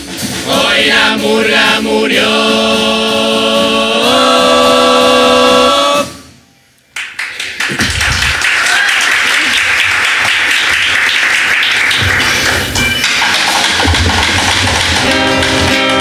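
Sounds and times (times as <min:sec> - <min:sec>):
chorus singing a chord: 0:00.4 - 0:06.4
audience applause and cheering: 0:06.9 - 0:16.0.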